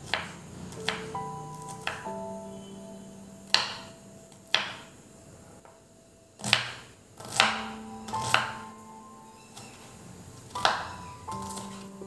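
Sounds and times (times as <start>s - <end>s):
knife chopping on wooden board: 0.1s - 1.0s, 6.4s - 8.6s, 10.5s - 11.8s
soft background music: 0.1s - 12.0s.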